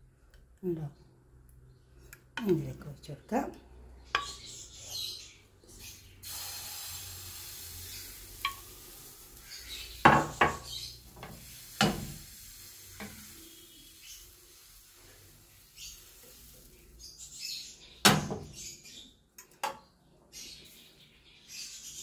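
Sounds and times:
batter hissing in hot pan: 6.2 - 17.2
pan clanking on stove grate: 8.4 - 8.7.

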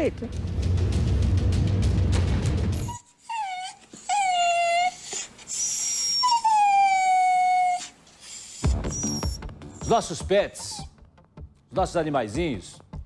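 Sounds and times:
music: 0.0 - 3.0, 8.6 - 13.0
dog whimpering: 2.8 - 11.0.

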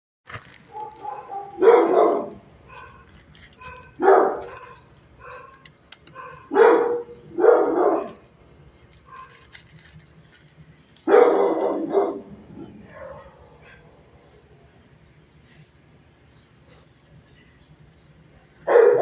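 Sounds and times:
dog barking: 0.7 - 8.2, 11.1 - 13.9, 18.6 - 19.0.

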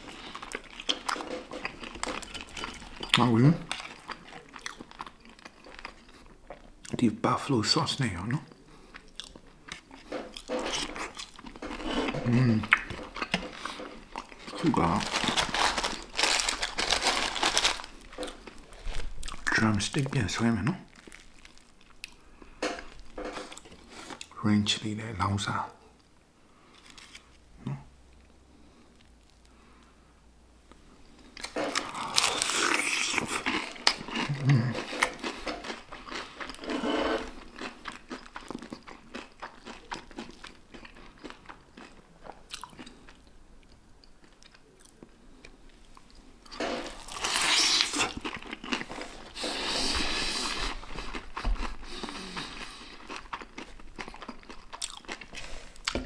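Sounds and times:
crunching fried chicken: 0.0 - 6.3, 9.0 - 22.2, 31.4 - 43.3, 46.4 - 56.0
quiet chewing: 30.7 - 56.0.

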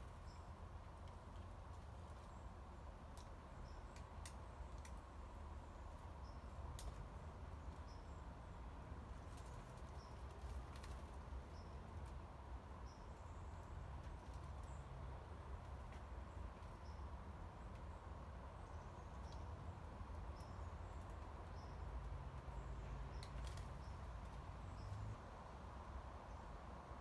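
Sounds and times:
faint clicks: 3.1 - 5.0.

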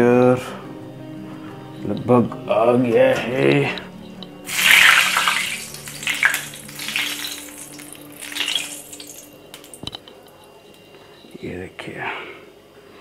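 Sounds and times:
soft background music: 0.0 - 13.0
frying oil sizzling: 4.5 - 9.7.

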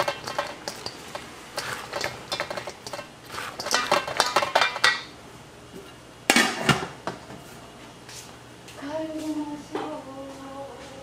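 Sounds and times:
spatula scraping a metal bowl: 0.0 - 5.0.

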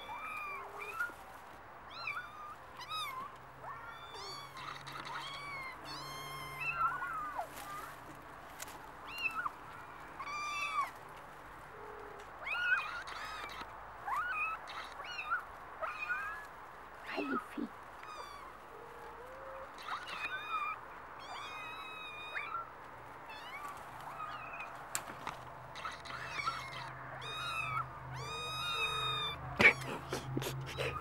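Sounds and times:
kittens mewing: 1.9 - 8.0, 12.3 - 22.7, 25.7 - 31.0.

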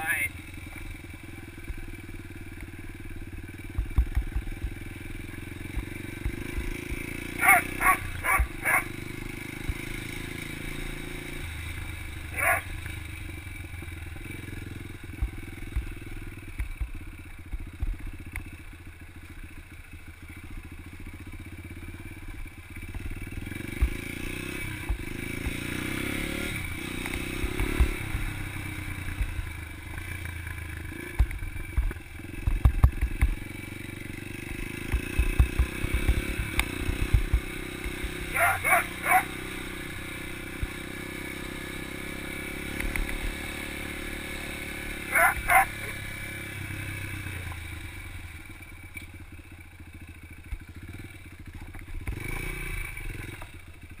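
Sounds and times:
dirt bike engine running: 0.0 - 54.0
dog barking: 7.4 - 9.0, 12.3 - 12.7, 38.3 - 39.4, 45.1 - 46.0.

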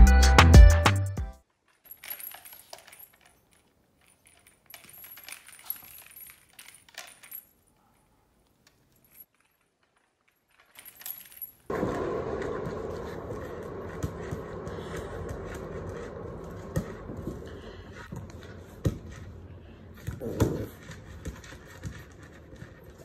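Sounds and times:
wire toy jingling and tapping: 1.6 - 11.7.

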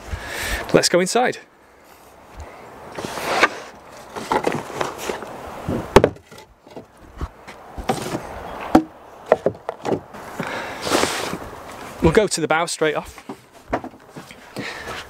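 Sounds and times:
wooden boards knocking and scraping: 2.9 - 11.4, 13.1 - 15.0.

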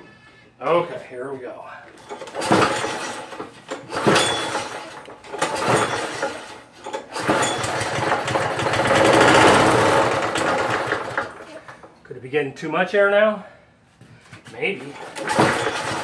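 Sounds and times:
lawn mower engine cranking: 2.0 - 11.9, 14.9 - 16.0
lawn mower engine running raggedly: 2.0 - 11.9, 15.0 - 16.0.

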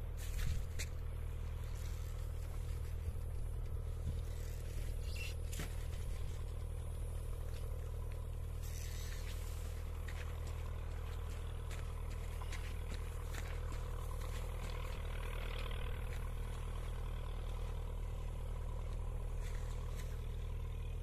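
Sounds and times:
low engine drone: 0.0 - 21.0.

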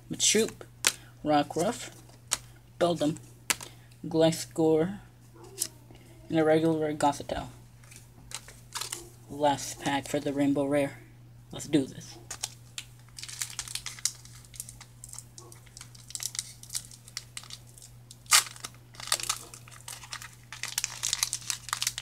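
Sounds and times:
foil wrapper tearing and crinkling: 7.8 - 9.2, 12.3 - 22.0.

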